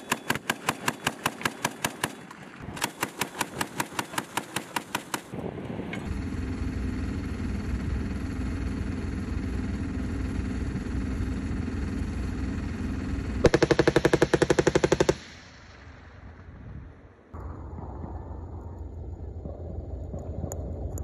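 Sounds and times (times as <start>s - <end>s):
machine-gun fire: 0.0s - 5.4s, 13.4s - 15.5s
vehicle engine rumble: 5.2s - 21.0s.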